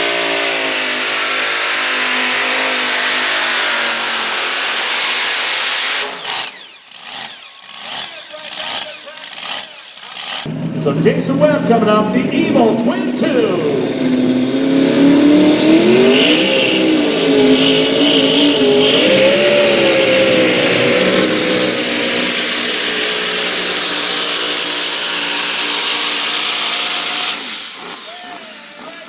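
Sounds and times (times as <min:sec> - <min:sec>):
racing engine at full throttle: 0:00.0 - 0:29.0
turbo whine: 0:06.0 - 0:11.0.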